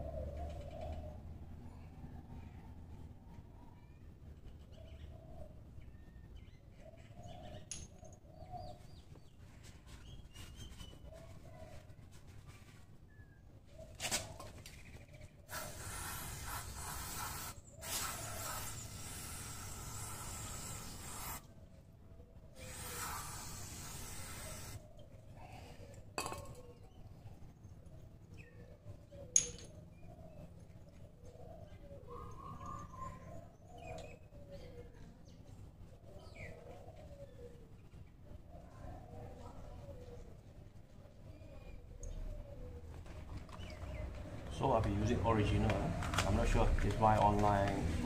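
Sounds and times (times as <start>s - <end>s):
low bird calls: 24.5s - 40.4s
metal tools clinking: 29.3s - 29.8s.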